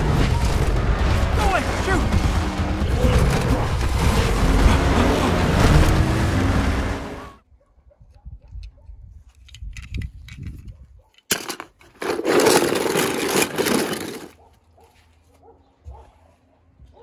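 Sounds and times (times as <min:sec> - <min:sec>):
metal toy cars clattering: 0:09.4 - 0:14.4.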